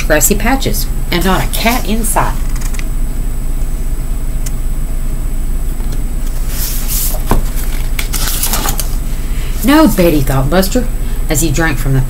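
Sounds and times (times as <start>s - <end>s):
steady low hum: 0.0s - 12.0s
paper rustling: 6.2s - 9.8s.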